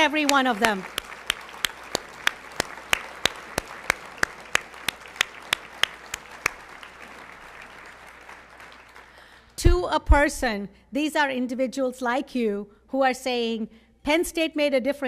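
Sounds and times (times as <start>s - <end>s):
audience applause: 0.0s - 9.6s
loud close hand claps: 0.0s - 9.6s.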